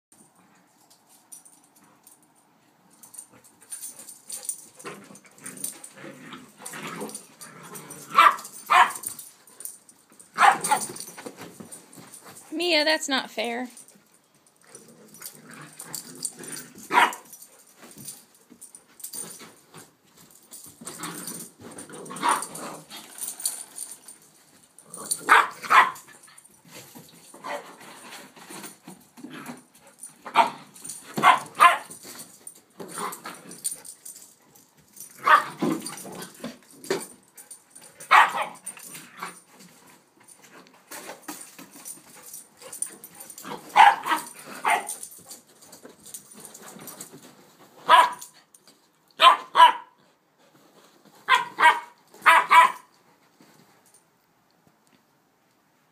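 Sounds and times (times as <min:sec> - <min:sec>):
dogs barking and yipping: 0:03.1 - 0:11.3, 0:14.7 - 0:19.3, 0:20.9 - 0:24.2, 0:25.1 - 0:26.5, 0:27.3 - 0:27.8, 0:29.8 - 0:32.1, 0:33.0 - 0:36.1, 0:37.0 - 0:39.5, 0:41.8 - 0:47.0, 0:47.8 - 0:48.4, 0:49.2 - 0:50.0, 0:51.2 - 0:52.9.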